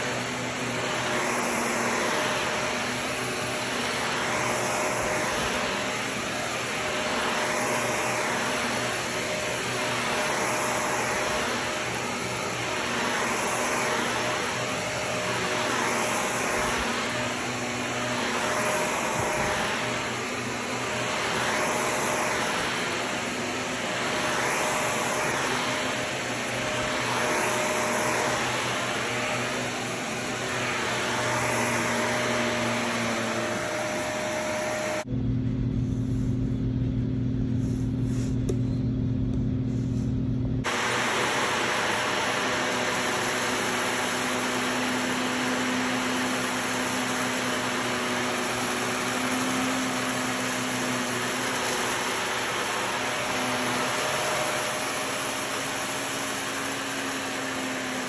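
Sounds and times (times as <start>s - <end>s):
vacuum cleaner on carpet: 0.0s - 58.0s
deep steady hum: 35.0s - 40.6s.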